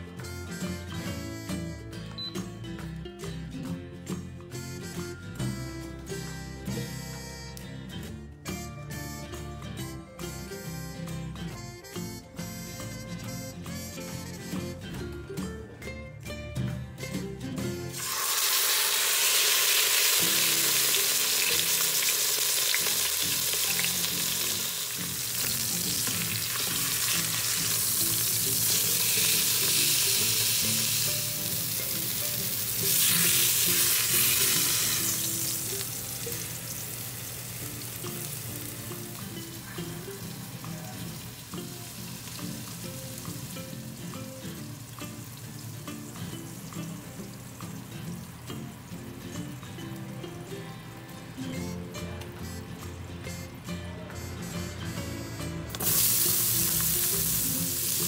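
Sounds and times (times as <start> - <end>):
meat sizzling in oil: 17.9 - 47.9, 55.8 - 58.0.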